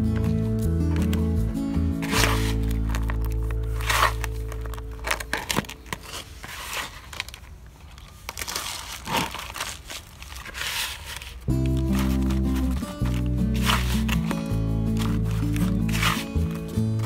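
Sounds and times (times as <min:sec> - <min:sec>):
background music: 0:00.0 - 0:05.8, 0:11.5 - 0:17.0
material crinkling and rustling: 0:02.0 - 0:17.0.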